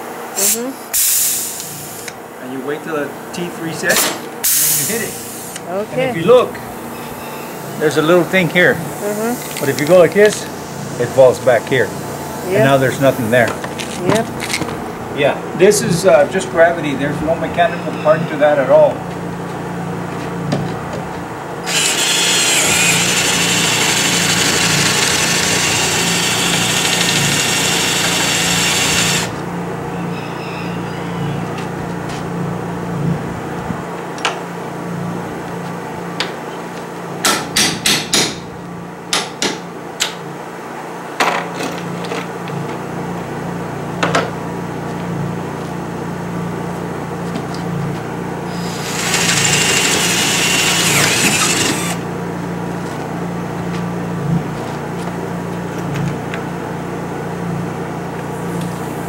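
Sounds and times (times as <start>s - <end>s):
steady low hum: 0.0s - 37.3s
cordless drill boring through metal: 21.6s - 29.4s, 48.5s - 52.0s.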